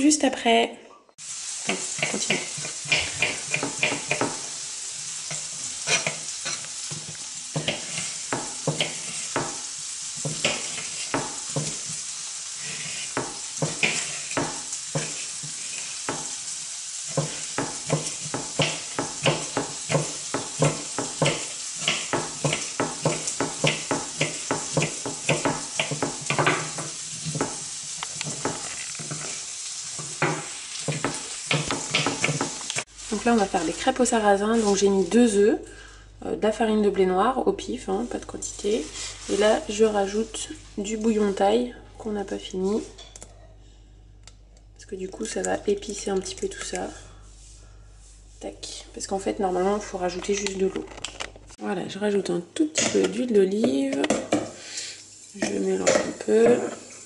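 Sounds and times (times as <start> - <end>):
steady hiss: 46.8 - 49.0, 54.4 - 55.7.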